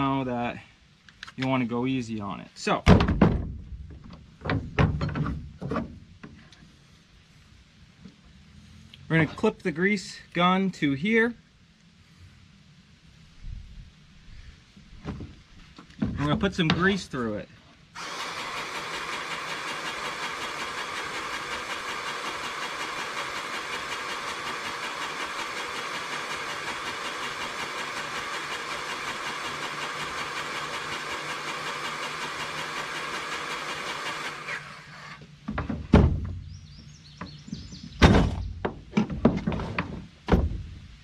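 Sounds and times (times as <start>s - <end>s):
tools knocking and clattering: 3.0s - 5.9s
grease gun running: 18.0s - 35.0s.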